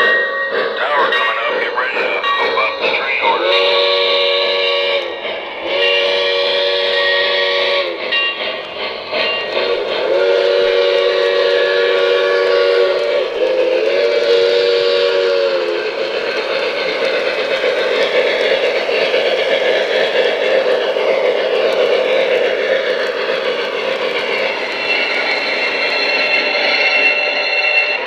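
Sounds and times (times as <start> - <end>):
model train steam whistle: 0.0 - 16.2, 24.3 - 28.0
model train running on track: 0.0 - 28.0.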